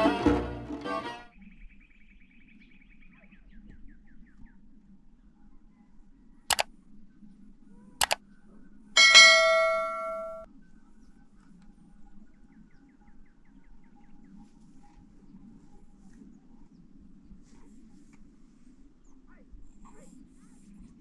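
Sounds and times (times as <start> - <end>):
metal clang ringing: 9.0 - 10.5.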